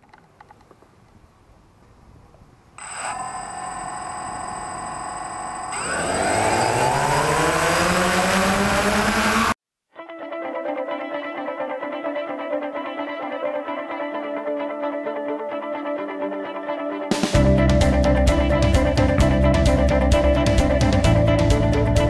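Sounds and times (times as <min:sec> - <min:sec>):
drone motors whining: 0:02.8 - 0:09.6.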